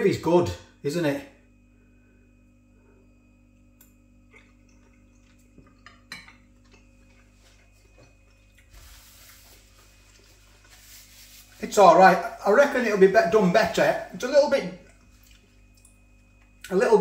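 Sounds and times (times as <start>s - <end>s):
faint soft rustle: 8.7s - 11.8s.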